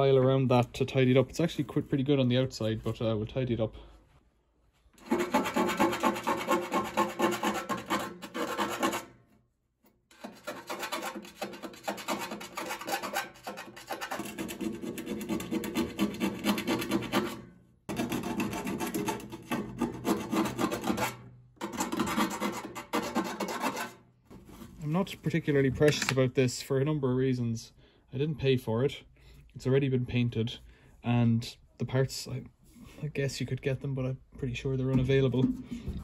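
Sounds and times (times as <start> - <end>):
hand file rasping on sheet metal: 5.0 - 9.2, 10.1 - 24.0.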